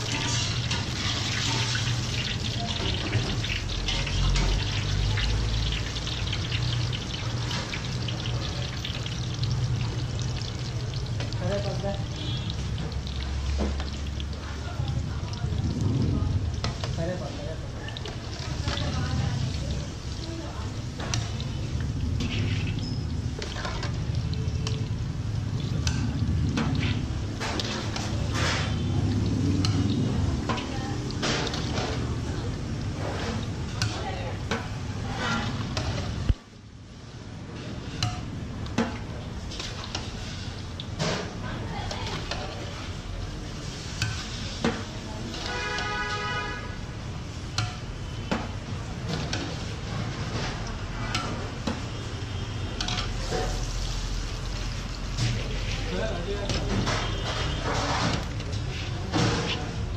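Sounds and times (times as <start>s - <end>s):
metal skimmer scraping a pan: 0.0s - 8.1s, 20.9s - 24.8s, 25.5s - 36.2s, 37.5s - 59.9s
nuts sizzling in hot oil: 0.0s - 59.9s.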